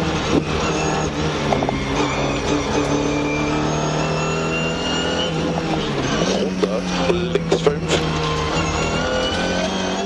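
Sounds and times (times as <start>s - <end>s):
car engine at high revs: 0.0s - 10.0s.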